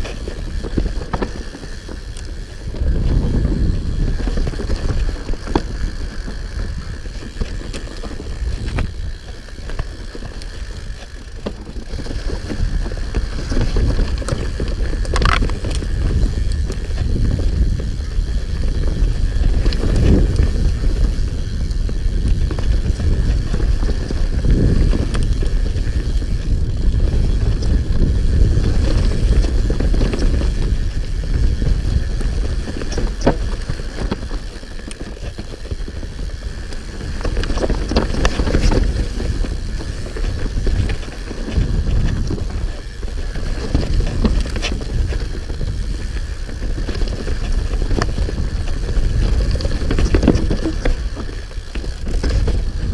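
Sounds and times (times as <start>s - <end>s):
bike clicks and rattles: 0.0s - 52.9s
tyres rolling over dirt: 0.0s - 52.9s
wind rumble on microphone: 0.0s - 52.9s.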